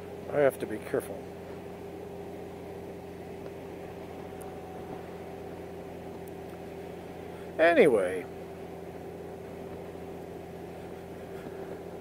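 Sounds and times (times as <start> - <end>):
motorcycle engine humming: 0.0 - 12.0
road and wind noise: 0.0 - 12.0.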